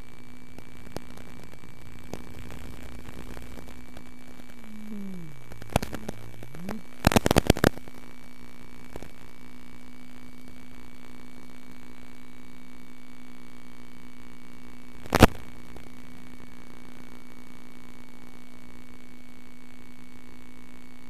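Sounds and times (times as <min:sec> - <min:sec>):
crackling static bursts: 0:00.0 - 0:12.2, 0:14.4 - 0:18.5
radio link hiss and hum: 0:00.0 - 0:21.0.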